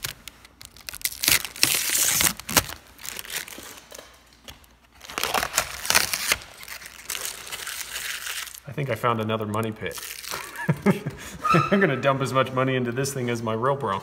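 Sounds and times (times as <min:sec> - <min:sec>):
plastic bags crinkling: 0:00.0 - 0:10.8.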